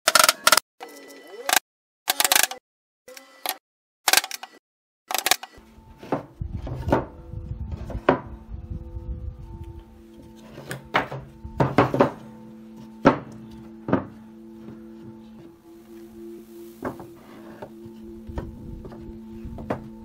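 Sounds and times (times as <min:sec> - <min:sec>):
background music: 0:05.1 - 0:20.0
wooden boards knocking on table: 0:10.9 - 0:12.2, 0:13.9 - 0:14.2.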